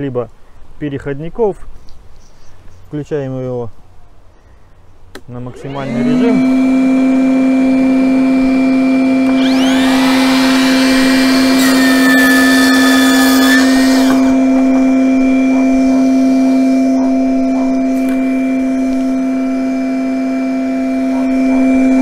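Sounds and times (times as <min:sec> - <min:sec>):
dust extractor humming: 0:05.2 - 0:22.0
miter saw cutting wood: 0:05.4 - 0:22.0.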